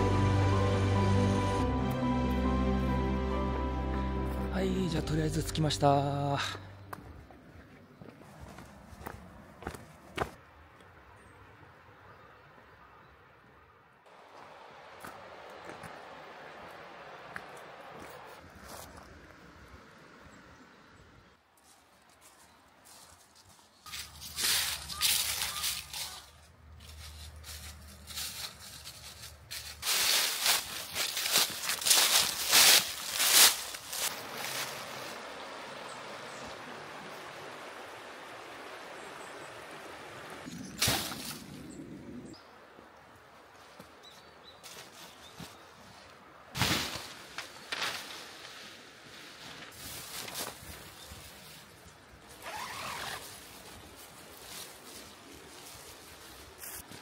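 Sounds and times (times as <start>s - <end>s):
footsteps crunching dry leaves: 21.6s - 35.3s, 46.6s - 57.0s
tent fabric crinkling and rustling: 21.6s - 35.3s, 44.5s - 57.0s.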